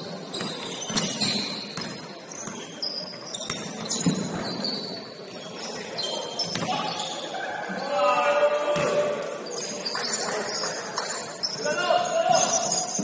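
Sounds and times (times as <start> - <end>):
sneakers squeaking on floor: 0.0 - 8.0, 8.8 - 13.0
basketball bouncing on court: 0.3 - 2.7.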